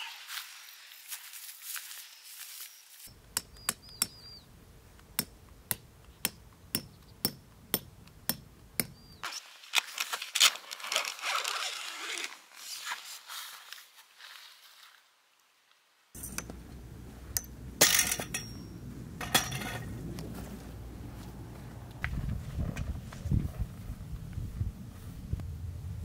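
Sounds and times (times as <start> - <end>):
sharp evenly spaced knocks: 5.0 - 9.0
rustling: 9.2 - 15.1
clinking: 16.2 - 16.7, 17.3 - 20.0.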